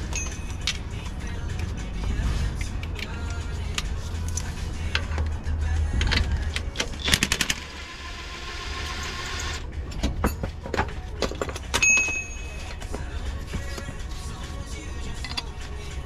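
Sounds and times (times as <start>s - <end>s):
metal clicks of tools: 0.0s - 1.7s, 2.5s - 5.4s, 15.2s - 15.6s.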